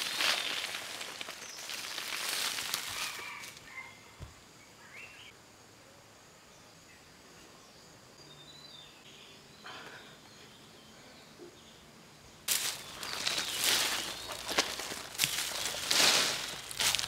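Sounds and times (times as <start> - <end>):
footsteps on dry soil and leaves: 0.0 - 3.6, 12.5 - 17.0.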